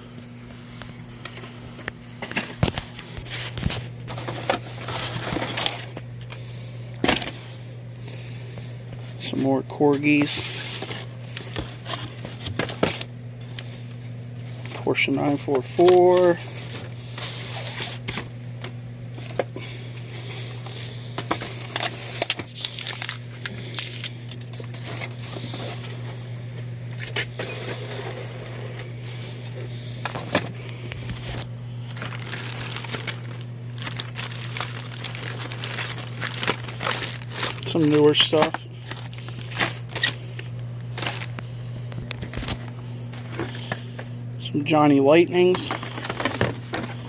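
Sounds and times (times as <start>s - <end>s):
steady low hum: 0.0s - 47.0s
boxes and toy packaging handled: 2.2s - 5.9s, 20.2s - 25.9s, 30.0s - 41.4s, 42.0s - 43.8s, 45.5s - 47.0s
cardboard boxes shuffling: 31.9s - 40.2s, 41.0s - 41.3s, 45.6s - 47.0s.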